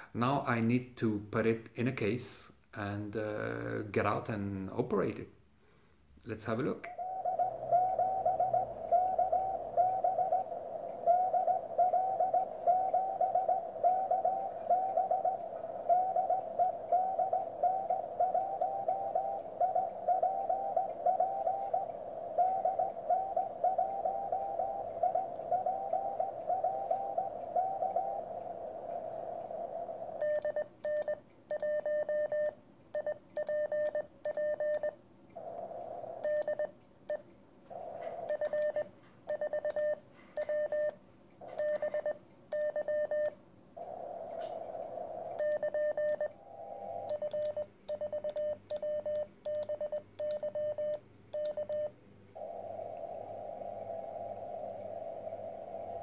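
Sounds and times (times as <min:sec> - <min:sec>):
morse code beeps: 0:07.0 - 0:28.3, 0:30.2 - 0:35.0, 0:36.2 - 0:37.2, 0:38.0 - 0:43.4, 0:45.4 - 0:52.8
radio band hiss: 0:10.2 - 0:30.4, 0:37.7 - 0:39.0, 0:43.8 - 0:47.2, 0:52.4 - 0:56.0.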